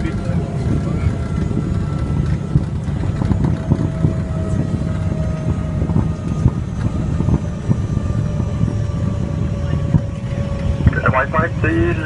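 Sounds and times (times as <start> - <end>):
faint jet engine whine: 0.0 - 12.0
tyres rumbling on runway: 0.0 - 12.0.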